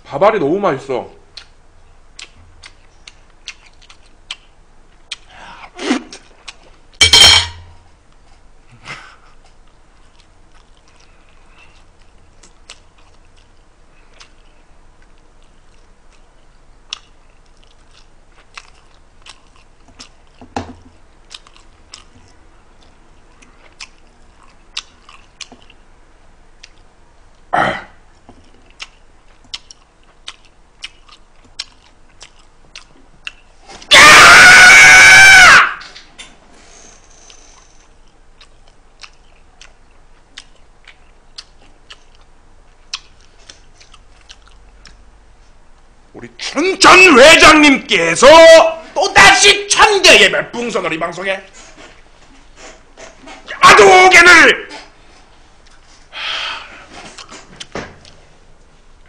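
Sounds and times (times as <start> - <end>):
chewing food: 1.3 - 5.3, 9.2 - 25.9, 26.6 - 27.5, 28.1 - 33.7, 37.2 - 45.0, 54.8 - 56.1, 56.9 - 58.2
mouth clicks and smacks: 2.2 - 5.3, 28.4 - 33.5, 38.0 - 42.3, 42.9 - 45.0
short loud noise: 7.0 - 7.8.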